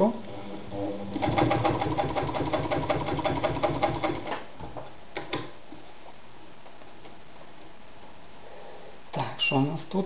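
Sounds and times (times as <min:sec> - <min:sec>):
sewing machine stitching: 0:01.2 - 0:04.4.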